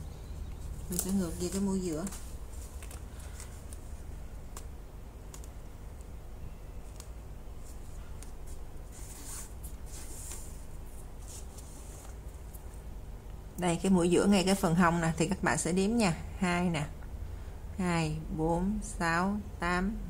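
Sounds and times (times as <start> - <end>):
fabric rustling: 0.0 - 5.7, 6.8 - 12.8
low electrical hum: 0.0 - 20.0
needle clicks: 0.5 - 6.1.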